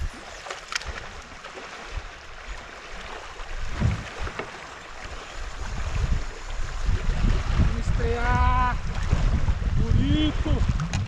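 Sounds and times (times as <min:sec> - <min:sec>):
river current rushing and lapping: 0:00.0 - 0:11.0
wind buffeting microphone: 0:03.4 - 0:04.4, 0:05.0 - 0:11.0
soft knocks: 0:03.7 - 0:04.5.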